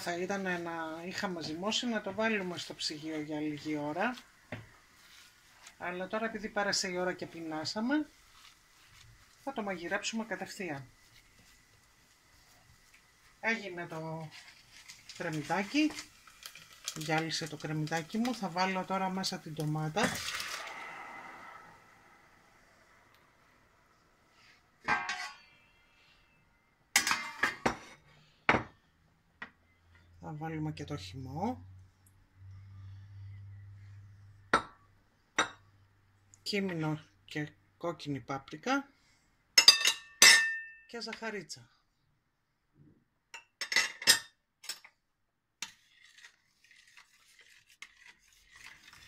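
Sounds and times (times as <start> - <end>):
steel cookware clattering: 24.9 - 25.4, 27.0 - 27.8, 39.6 - 40.8
metal spoon clinking on pot: 39.6 - 40.8
spoon scraping through sauce: 45.6 - 49.0.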